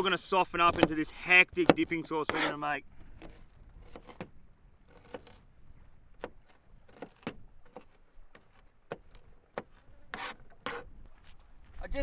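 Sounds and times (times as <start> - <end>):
knife chopping on plastic board: 0.6 - 2.5.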